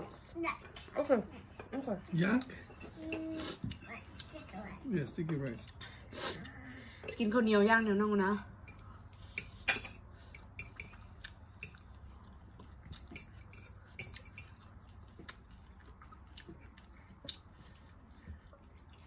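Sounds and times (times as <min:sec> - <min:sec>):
chewing with clicks and smacks: 0:08.7 - 0:19.0.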